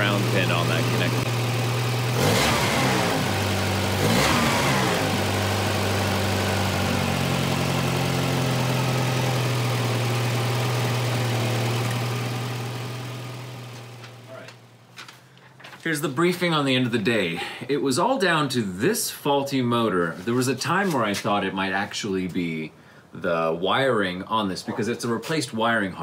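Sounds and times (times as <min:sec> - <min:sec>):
car engine idling: 0:00.0 - 0:14.8.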